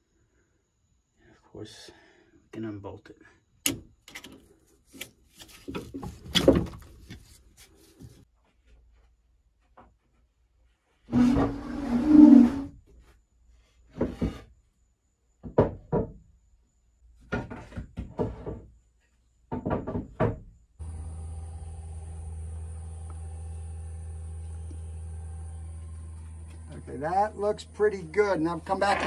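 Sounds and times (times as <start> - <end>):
knocks and clunks: 5.6 - 7.3, 15.4 - 16.3, 17.2 - 18.8, 19.5 - 21.0, 28.1 - 29.0
crane engine droning hum: 20.8 - 28.9.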